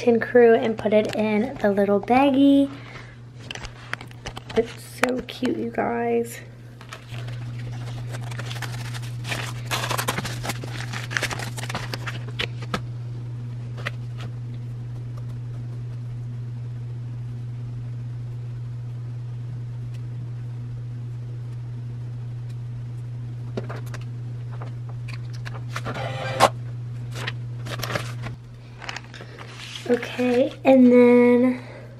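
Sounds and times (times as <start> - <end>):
steady low hum: 0.0 - 31.9
packaging rustling and crinkling: 6.8 - 12.8, 27.1 - 30.6.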